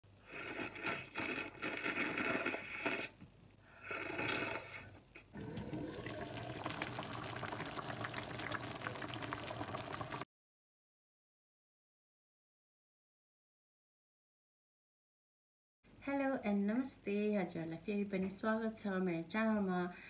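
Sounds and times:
wet slurping of noodles: 0.2 - 3.2, 3.8 - 10.2
broth bubbling in a pan: 5.4 - 10.3.

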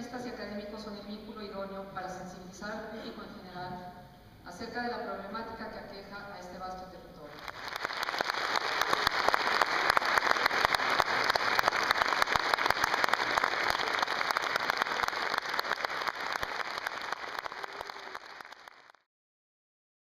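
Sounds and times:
audience applauding: 7.3 - 19.0.

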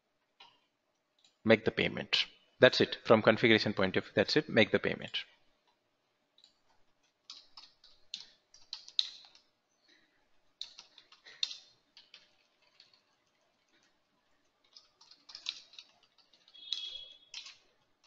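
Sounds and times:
keyboard typing: 6.4 - 9.6, 10.5 - 18.0.

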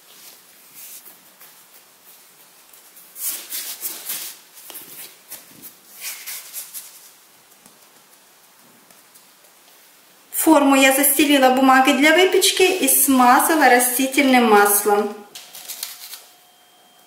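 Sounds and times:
hands rolling bread dough: 0.0 - 10.8.

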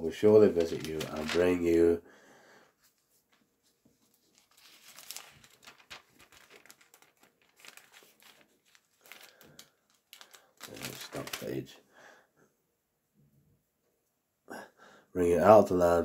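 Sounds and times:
thin pages rustling: 0.3 - 1.8, 2.8 - 11.7.

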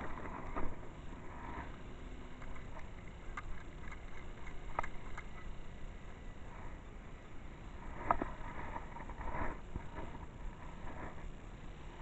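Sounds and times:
camera handling rumble and rustle: 0.0 - 5.7, 7.8 - 11.4.

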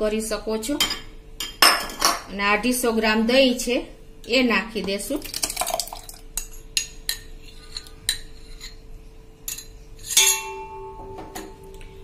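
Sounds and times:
steel spoon clinking on bowl: 9.5 - 10.8.

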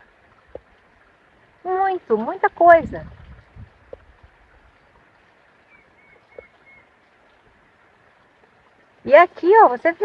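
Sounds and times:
faint outdoor background: 0.0 - 10.0
bird chirping: 5.6 - 6.9.

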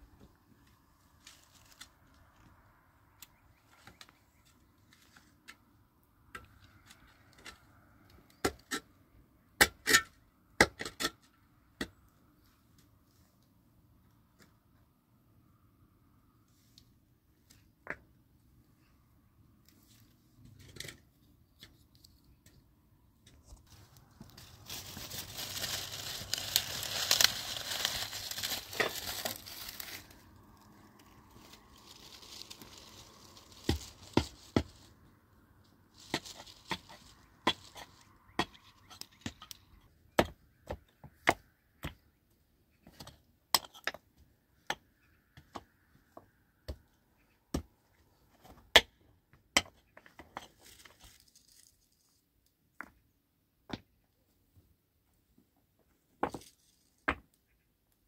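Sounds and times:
dry twigs snapping: 24.0 - 34.8.

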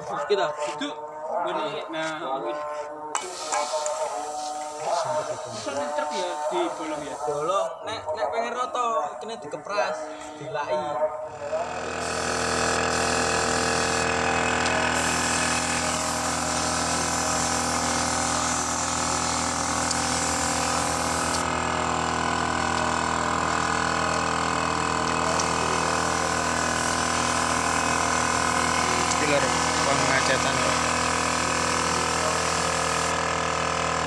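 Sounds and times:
spray gun hissing: 3.2 - 7.5, 12.0 - 21.6, 22.9 - 33.2
air compressor motor running: 3.2 - 7.7, 11.3 - 34.0.

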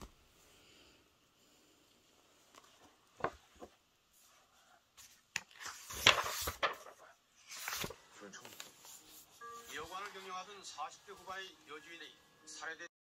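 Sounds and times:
pages rustling: 2.4 - 4.4, 5.0 - 10.5.

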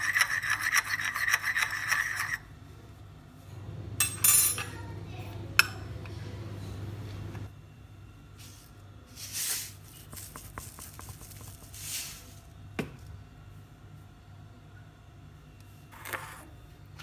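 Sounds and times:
utensil swishing through flour: 8.4 - 12.5.

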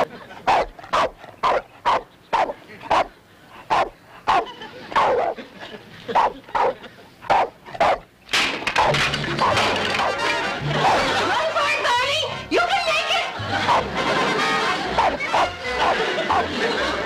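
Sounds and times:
dog barking sharply: 0.5 - 3.1, 5.0 - 5.4, 6.2 - 8.0, 15.0 - 16.5.

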